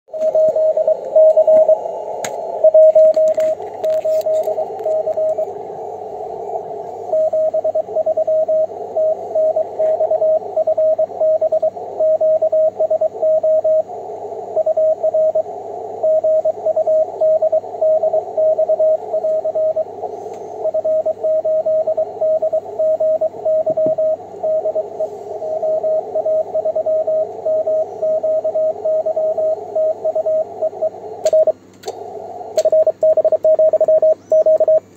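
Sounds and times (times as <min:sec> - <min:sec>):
morse code tone: 0:00.1 - 0:01.8, 0:02.6 - 0:05.5, 0:07.1 - 0:13.9, 0:20.6 - 0:31.6, 0:32.6 - 0:34.9
receiver hiss: 0:00.1 - 0:34.9.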